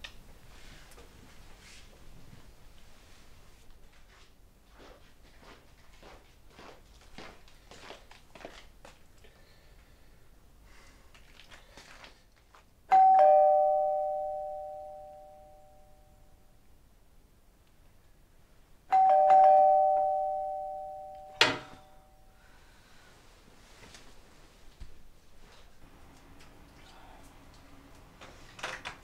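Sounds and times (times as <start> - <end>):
two-tone doorbell chime: 12.9 - 16.4, 18.9 - 22.3.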